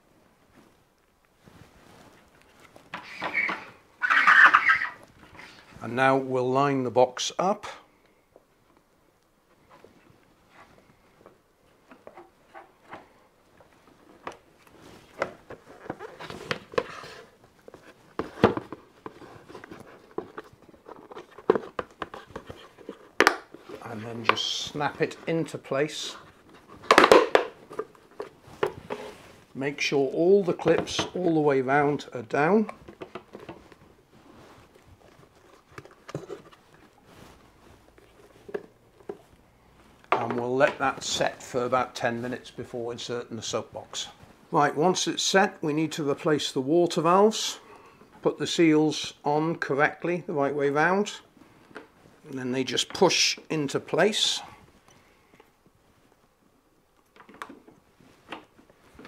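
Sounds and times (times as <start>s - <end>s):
plastic rubbing: 1.5s - 5.8s, 11.7s - 42.6s
plastic box handling: 11.9s - 29.5s, 34.6s - 41.5s.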